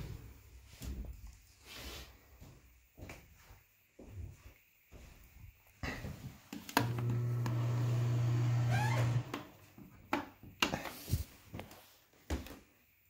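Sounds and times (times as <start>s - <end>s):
low electric hum: 6.8s - 9.4s.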